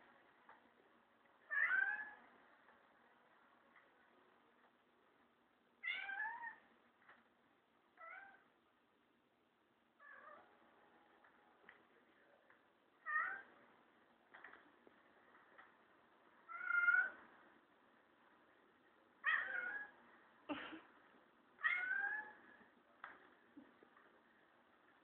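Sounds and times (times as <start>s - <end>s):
cat meowing: 1.5s - 2.2s, 5.8s - 6.6s, 16.5s - 17.2s, 19.2s - 20.0s, 21.6s - 22.4s.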